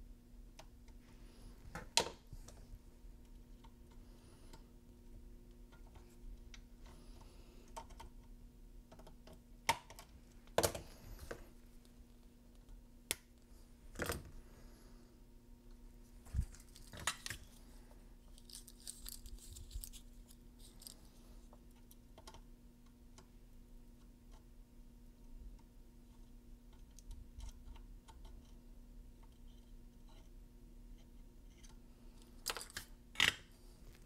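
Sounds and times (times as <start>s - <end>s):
faint steady hum: 0.0s - 34.0s
light crinkling rustle: 16.0s - 21.2s.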